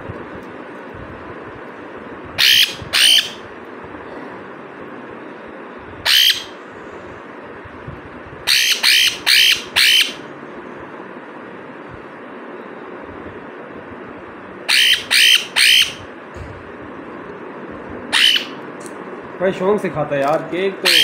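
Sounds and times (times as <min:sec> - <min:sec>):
parrot squawking: 0:02.4 - 0:03.4, 0:06.0 - 0:06.6, 0:08.4 - 0:10.2, 0:14.6 - 0:16.1, 0:18.1 - 0:18.6, 0:20.8 - 0:21.0.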